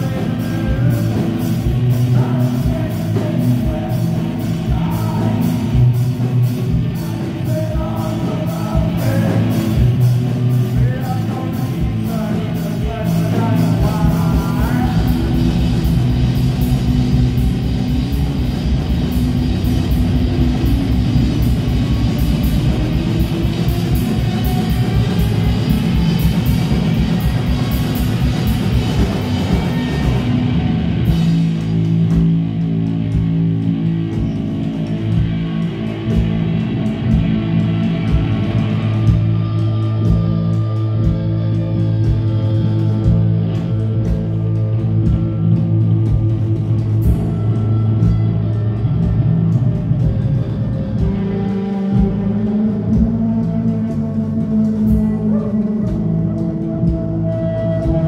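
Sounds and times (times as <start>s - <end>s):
person singing: 0.0s - 16.6s
drums beating: 0.0s - 58.0s
live rock band playing: 0.0s - 58.0s.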